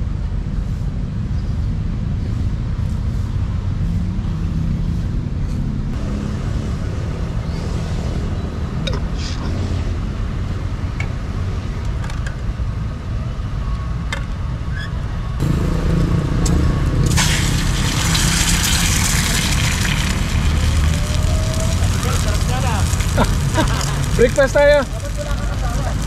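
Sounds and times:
low traffic rumble: 0:00.0 - 0:26.0
egg sizzling in oil: 0:17.0 - 0:26.0
oil popping in pan: 0:17.0 - 0:26.0.

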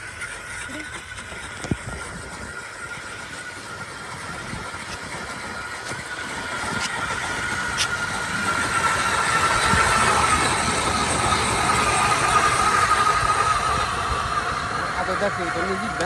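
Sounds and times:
ice auger motor whine: 0:00.0 - 0:16.0.

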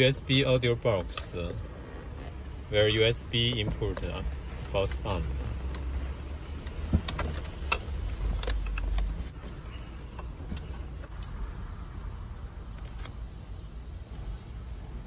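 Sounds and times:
cables and plastic connectors rattling: 0:00.0 - 0:11.4.

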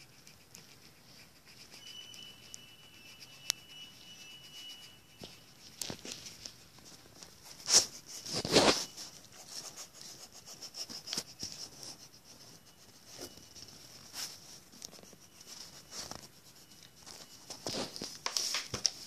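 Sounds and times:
paper rustling: 0:05.2 - 0:10.2, 0:13.0 - 0:19.0.

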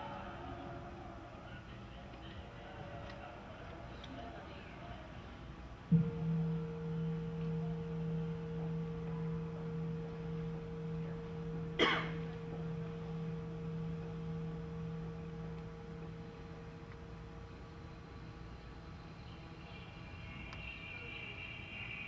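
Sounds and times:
singing bowl ringing: 0:05.9 - 0:19.2.

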